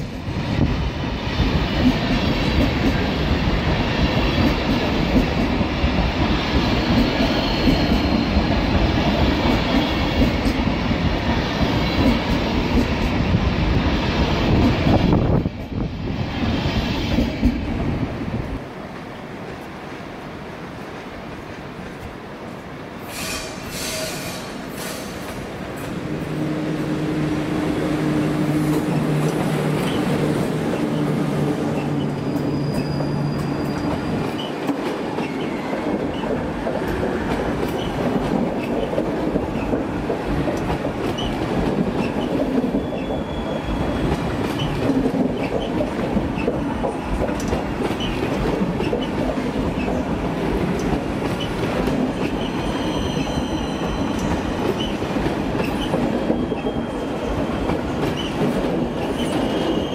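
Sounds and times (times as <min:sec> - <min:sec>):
clickety-clack over rail joints: 0:00.0 - 0:19.7, 0:28.2 - 0:59.9
train wheels rumbling: 0:00.0 - 0:20.0, 0:20.8 - 0:59.9
electric locomotive hum: 0:24.3 - 0:59.9
faint wheel squeals: 0:32.2 - 0:34.5.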